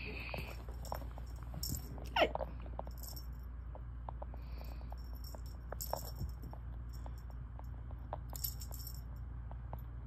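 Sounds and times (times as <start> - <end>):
light metallic jingling: 0.2 - 3.5, 4.5 - 9.3.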